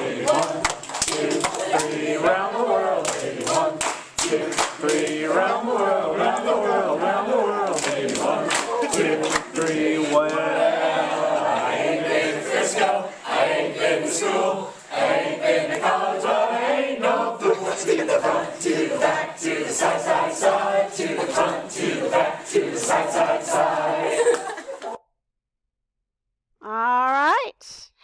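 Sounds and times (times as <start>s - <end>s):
voices chanting a clapping rhyme: 0.0s - 24.7s
hand claps: 0.3s - 2.1s, 3.0s - 5.3s, 7.6s - 10.4s, 24.2s - 24.6s.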